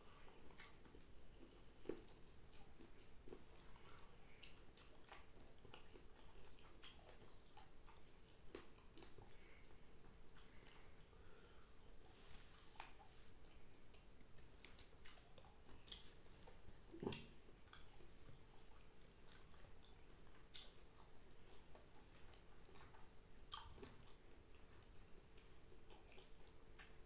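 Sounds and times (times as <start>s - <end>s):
chewing: 0.1s - 27.0s
small wet clicks of fingers: 19.3s - 20.8s.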